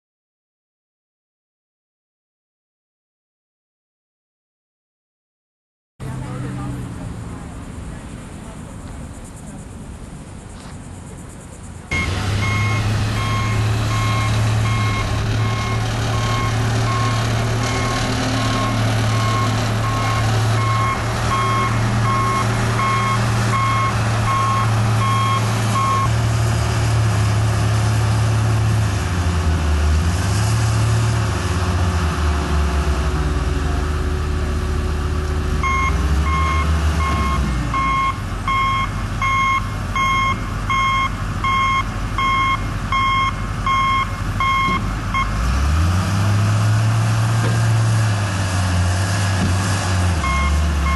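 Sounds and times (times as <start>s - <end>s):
wheel loader diesel engine: 6.0s - 50.9s
reversing alarm beeping: 11.9s - 26.1s, 35.6s - 45.4s, 50.2s - 50.9s.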